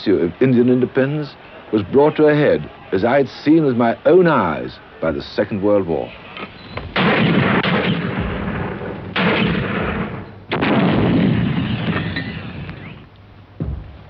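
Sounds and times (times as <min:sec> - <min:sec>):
field gun firing: 0:06.9 - 0:13.0.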